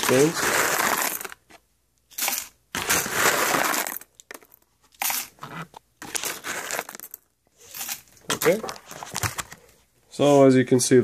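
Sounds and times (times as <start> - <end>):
coffee beans rattling: 0.0 - 1.4, 2.1 - 9.0.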